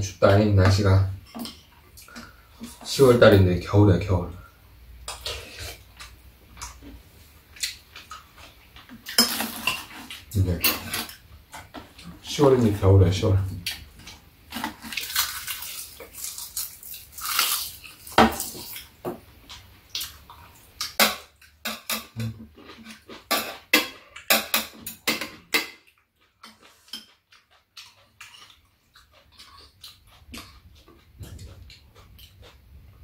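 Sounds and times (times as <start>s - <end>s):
metal utensils clinking on dishes: 1.2s - 1.7s, 9.1s - 11.7s.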